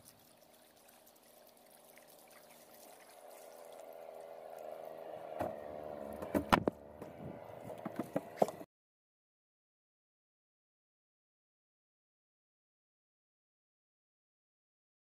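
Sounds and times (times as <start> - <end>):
water lapping at hull: 0.0 - 6.6
outboard motor running: 0.0 - 8.7
boat bow knocking on bank: 5.4 - 8.6.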